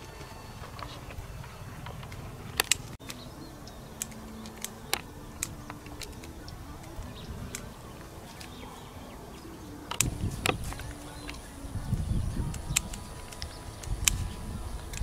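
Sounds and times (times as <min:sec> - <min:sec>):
plants rustling: 0:00.0 - 0:15.0
plant stems snapping: 0:01.8 - 0:03.3, 0:04.0 - 0:08.8, 0:12.4 - 0:15.0.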